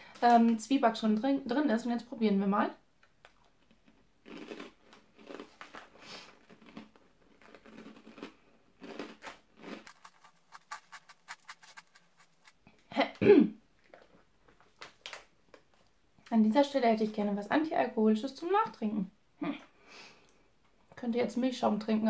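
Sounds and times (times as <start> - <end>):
crackling clicks of chewing: 3.0 - 12.5
rusk being chewed crunchily: 3.0 - 12.7.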